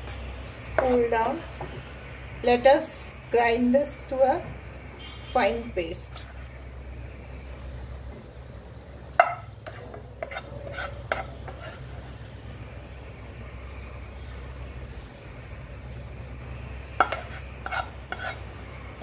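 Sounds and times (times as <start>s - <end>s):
spatula scraping a pan: 9.6s - 12.0s, 17.0s - 18.5s.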